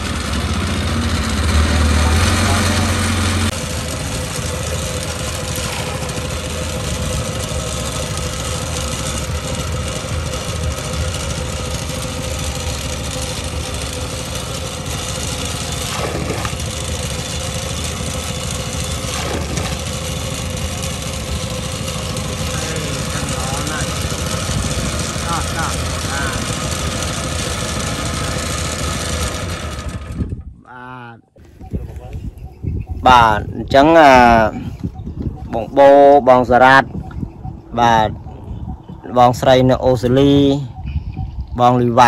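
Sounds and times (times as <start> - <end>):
boat engine droning: 0.0 - 42.0.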